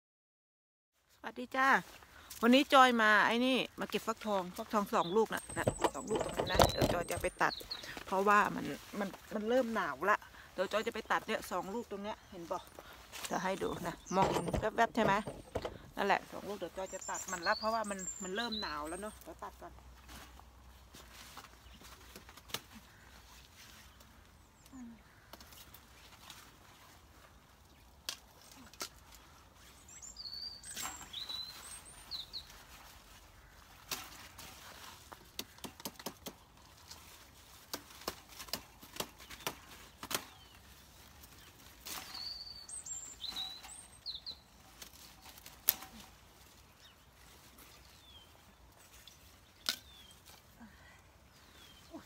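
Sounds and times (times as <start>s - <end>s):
vines snapping and rustling: 21.0s - 23.1s, 23.9s - 29.7s, 32.4s - 42.4s, 43.1s - 50.6s
small bird chirping: 41.4s - 44.6s.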